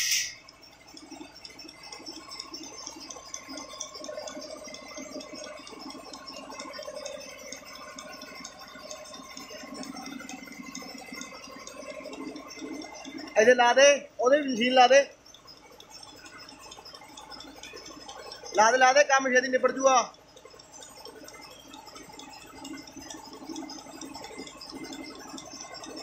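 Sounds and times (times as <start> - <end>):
short hiss: 0.0 - 0.3
milking machine rattling: 0.0 - 26.0.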